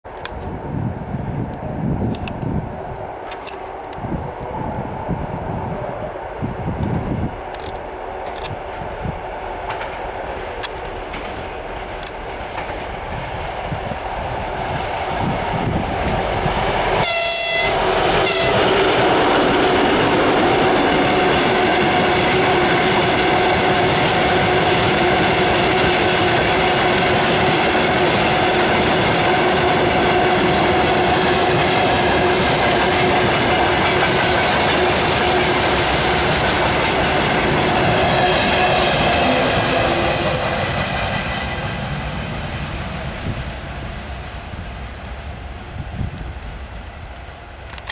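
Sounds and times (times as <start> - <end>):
diesel locomotive approaching: 0.1 - 47.9
freight wagons rumbling on rails: 0.1 - 47.9
train horn blast: 17.0 - 20.0, 37.5 - 41.9.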